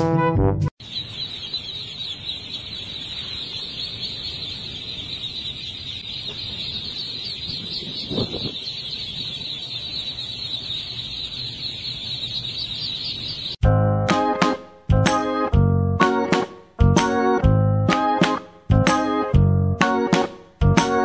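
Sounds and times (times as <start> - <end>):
ducklings peeping: 0.8 - 13.6.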